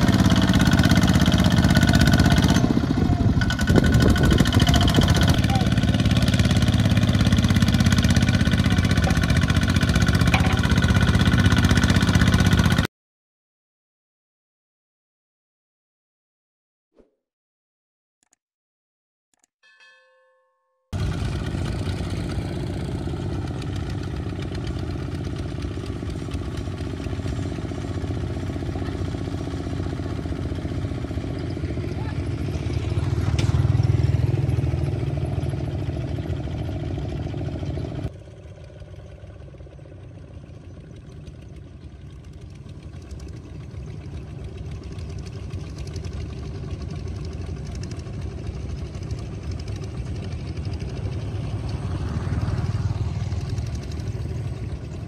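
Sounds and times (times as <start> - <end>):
diesel tractor engines running: 0.0 - 12.9, 21.0 - 55.0.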